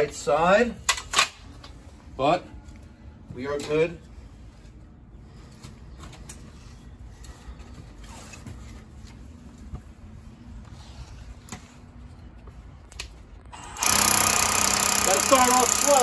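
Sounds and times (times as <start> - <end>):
rotary hammer drilling masonry: 13.6 - 16.0.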